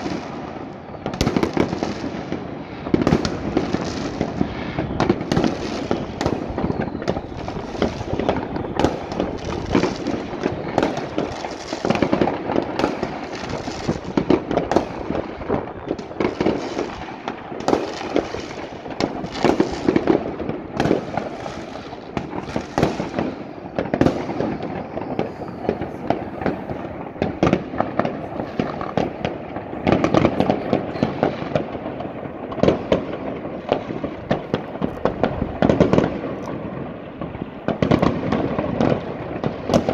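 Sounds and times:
fireworks bangs and crackling: 0:00.0 - 0:39.9.

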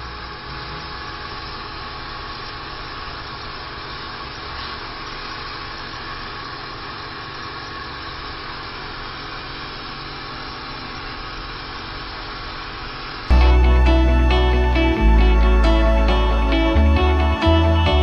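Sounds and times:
music: 0:13.3 - 0:18.0.

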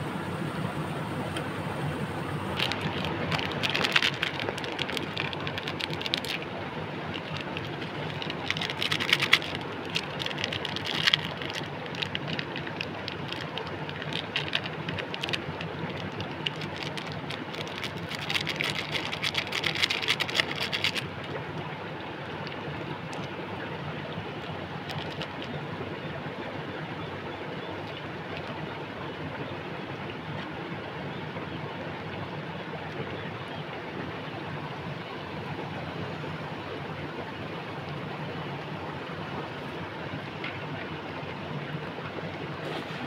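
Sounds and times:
low background noise: 0:00.0 - 0:43.0
foil sachets crinkling: 0:02.5 - 0:06.5, 0:07.1 - 0:21.1, 0:24.8 - 0:25.5.

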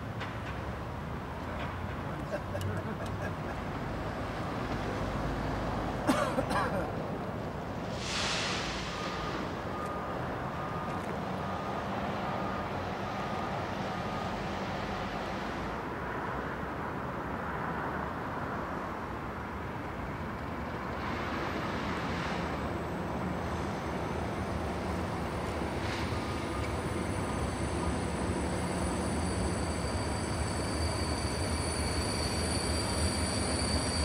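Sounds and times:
faint high beeps: 0:09.0 - 0:13.4
locomotive engine humming: 0:22.4 - 0:34.0.

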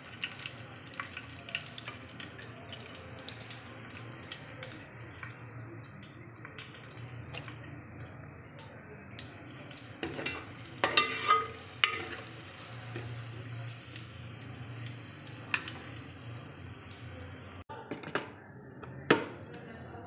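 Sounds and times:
ladle clinking against pot: 0:10.0 - 0:12.3.

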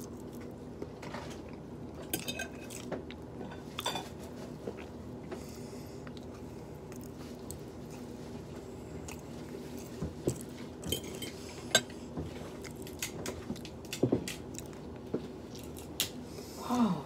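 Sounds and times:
chewing: 0:00.0 - 0:03.9, 0:04.6 - 0:16.1
steady low hum: 0:00.0 - 0:17.0.

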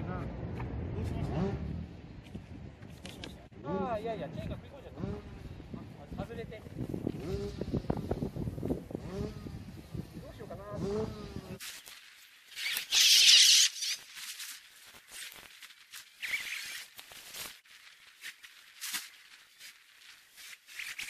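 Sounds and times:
high-pitched squeaky chirps: 0:12.6 - 0:14.0.

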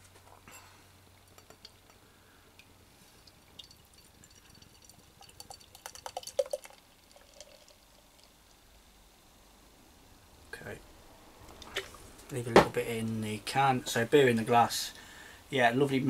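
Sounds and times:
beer trickling into glass: 0:01.1 - 0:08.7.

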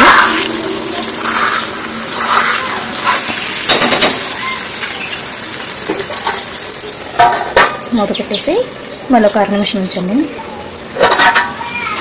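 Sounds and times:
light sizzle: 0:00.0 - 0:12.0
spatula scraping metal pan: 0:01.2 - 0:03.5
knocks against pan: 0:03.7 - 0:04.2.

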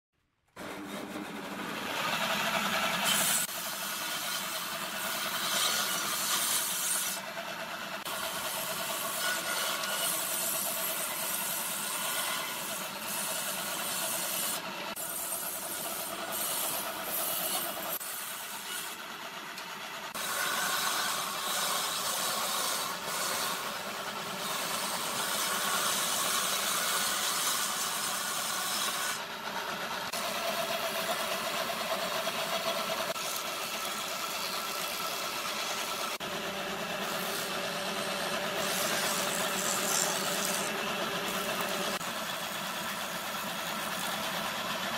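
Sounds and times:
planer running: 0:00.5 - 0:05.4, 0:28.0 - 0:44.9
circular saw cutting wood: 0:00.5 - 0:44.9
motor drone: 0:07.1 - 0:44.9.

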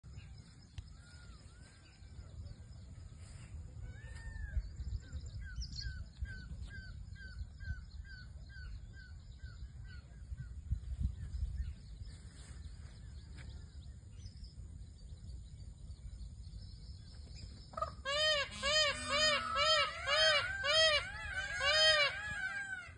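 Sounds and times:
steady low rumble: 0:00.0 - 0:18.1.

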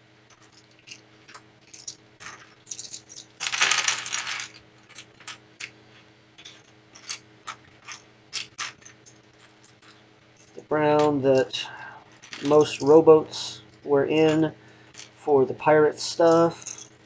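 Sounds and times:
plastic pieces clattering on wooden table: 0:00.3 - 0:12.9, 0:16.2 - 0:17.0.

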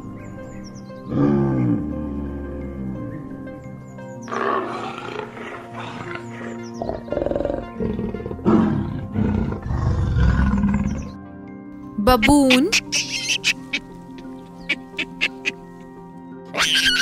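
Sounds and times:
background music: 0:00.0 - 0:17.0
leopard growling: 0:01.0 - 0:11.2.

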